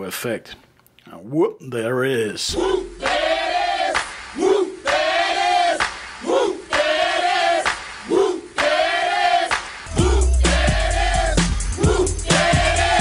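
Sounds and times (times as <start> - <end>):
music with heavy bass: 2.5 - 4.3, 9.9 - 13.0
group of voices chanting: 2.5 - 13.0.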